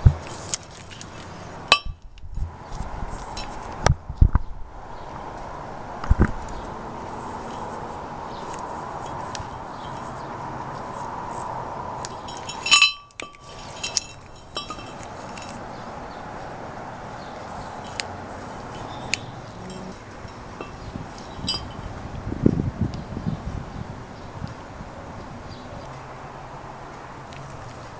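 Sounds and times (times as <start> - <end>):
steady background noise: 0.0 - 27.9
sharp metallic clink: 1.7 - 2.0, 12.1 - 15.6, 18.8 - 21.8.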